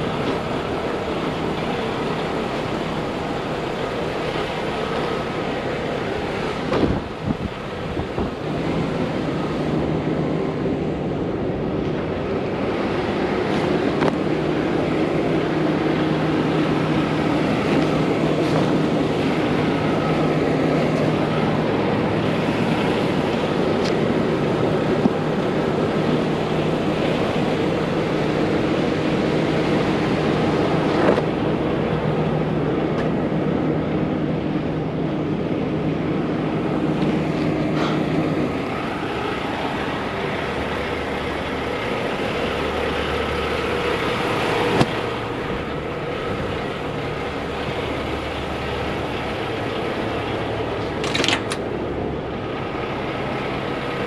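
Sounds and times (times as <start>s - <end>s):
diesel truck engine idling: 0.0s - 54.0s
wind noise on microphone: 6.2s - 28.6s.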